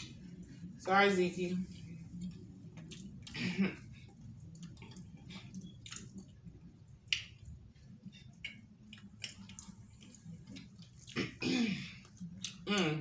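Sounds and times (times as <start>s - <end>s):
chewing with wet mouth clicks: 2.1s - 3.4s, 4.0s - 11.3s, 12.0s - 12.9s.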